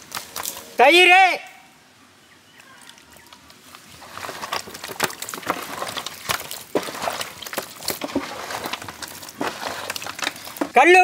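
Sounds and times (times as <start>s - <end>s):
wet squelching of curd by hand: 5.4s - 10.6s.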